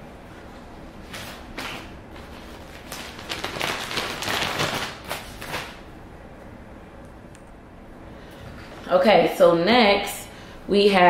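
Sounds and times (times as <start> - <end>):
plastic bag crinkling: 2.7 - 5.6.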